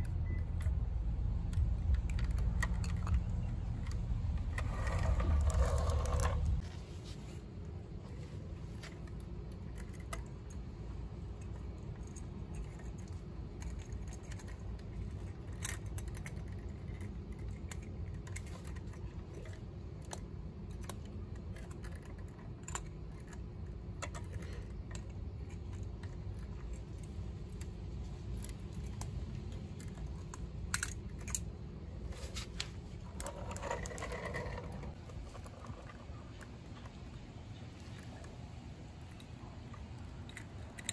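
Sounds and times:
low background rumble: 0.0s - 40.9s
toy truck parts clicking: 1.4s - 6.6s, 9.2s - 31.6s, 40.0s - 40.9s.

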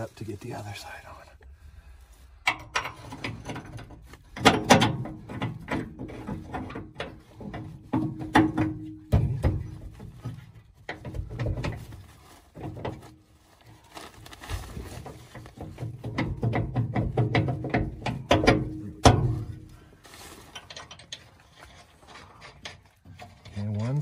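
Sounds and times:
metal knocks and clanks: 2.4s - 13.2s, 15.2s - 19.8s.

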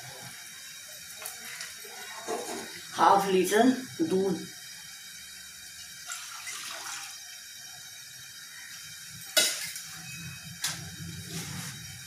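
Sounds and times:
milk pouring into saucepan: 4.9s - 8.3s.

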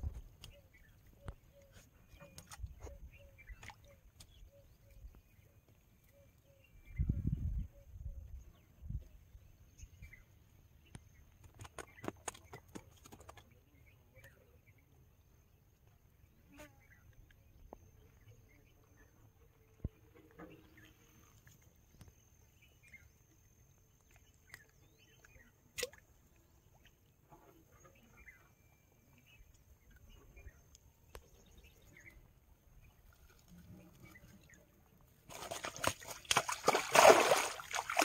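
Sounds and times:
net splashing in river water: 35.2s - 38.0s.

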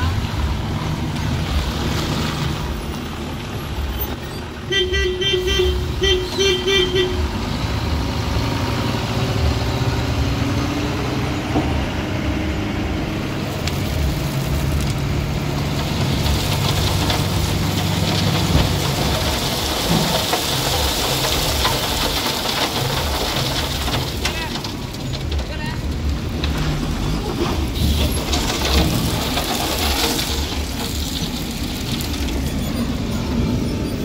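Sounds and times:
diesel truck engine running: 0.0s - 34.0s
crushed stone pouring: 13.3s - 27.0s, 27.6s - 32.8s.

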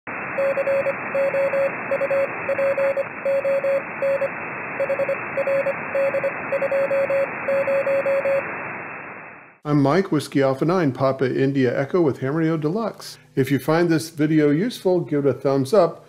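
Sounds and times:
radio static hiss: 0.1s - 10.1s
morse code beeps: 0.4s - 8.5s.

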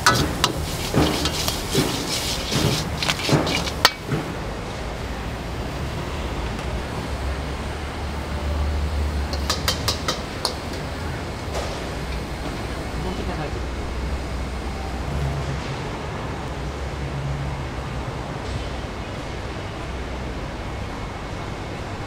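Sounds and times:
metal ladle scraping a wok: 0.0s - 4.1s
gas burner rumble: 0.0s - 22.0s.

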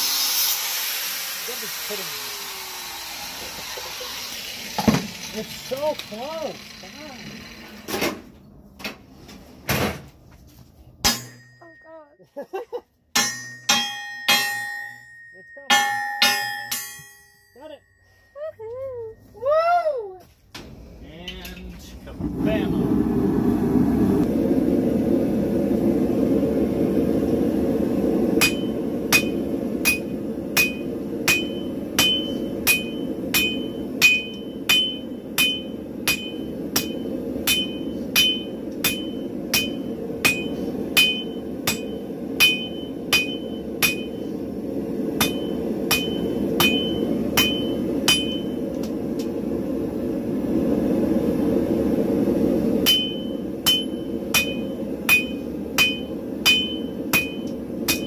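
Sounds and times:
gas forge burners rushing: 0.0s - 11.6s, 20.2s - 58.0s
hammer striking steel on anvil: 11.0s - 12.0s, 13.1s - 17.9s, 28.4s - 44.2s, 45.2s - 48.9s, 52.8s - 58.0s.

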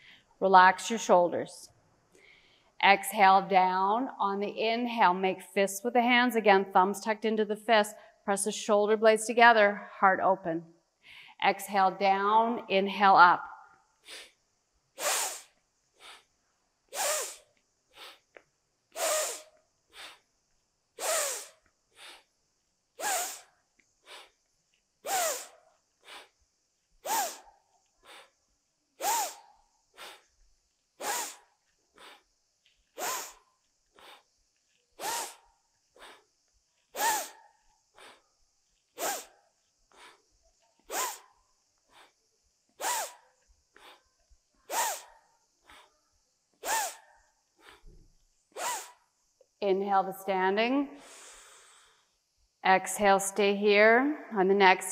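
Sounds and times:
woman breathing forcefully: 15.0s - 16.3s, 18.9s - 20.3s, 21.0s - 22.3s, 23.0s - 24.4s, 25.1s - 26.4s, 27.0s - 28.4s, 29.0s - 30.3s, 31.0s - 32.3s, 32.9s - 34.4s, 35.0s - 35.4s, 36.0s - 36.3s, 37.0s - 38.3s, 38.9s - 39.3s, 39.9s - 41.2s, 41.9s - 42.2s, 43.8s - 44.1s, 45.6s - 46.0s, 47.6s - 48.0s, 51.0s - 52.2s.

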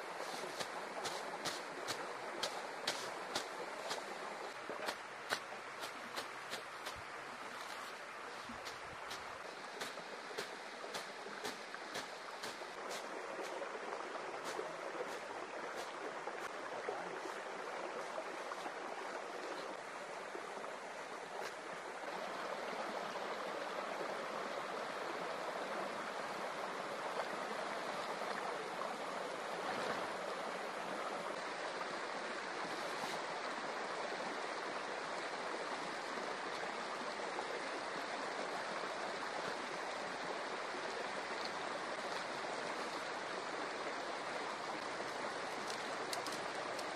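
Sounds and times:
river water flowing: 0.0s - 46.9s
faint sharp high ticks: 45.6s - 46.9s.

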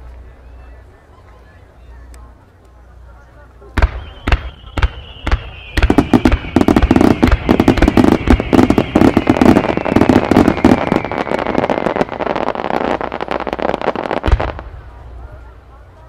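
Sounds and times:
fireworks bangs and crackling: 3.7s - 15.6s
descending firework whistle: 3.8s - 14.6s.

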